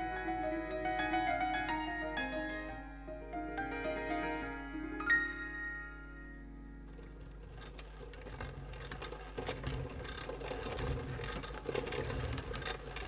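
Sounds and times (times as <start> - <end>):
wheelchair wheels rattling on stone: 6.9 - 13.0.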